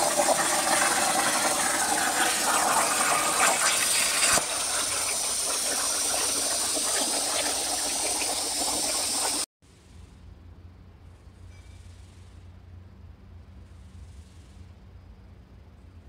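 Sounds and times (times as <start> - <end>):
air hissing through torch: 0.0 - 9.5
plasma torch arc hissing: 1.5 - 9.4.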